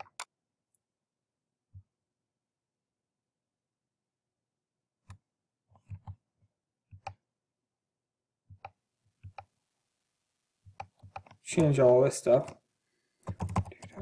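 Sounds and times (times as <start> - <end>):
computer mouse clicking: 8.5 - 9.5, 10.7 - 11.7, 13.2 - 14.0.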